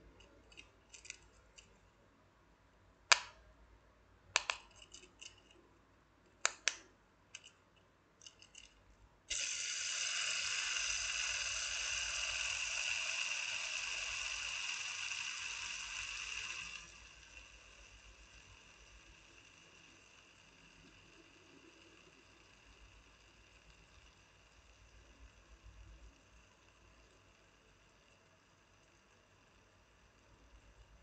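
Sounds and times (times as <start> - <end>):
fidget toy clicks: 0.2 - 1.2, 4.4 - 5.4, 6.4 - 6.8, 8.2 - 28.2
spinner bearing whirring: 8.2 - 31.0.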